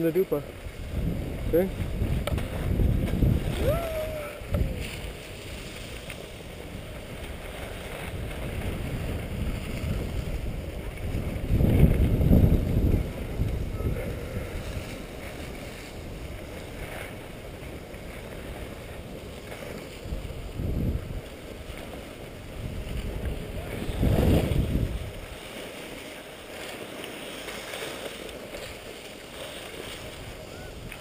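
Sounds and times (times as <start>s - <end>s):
wind on microphone: 0.5s - 26.8s, 27.6s - 31.0s
skis sliding over snow: 1.6s - 12.8s, 21.2s - 31.0s.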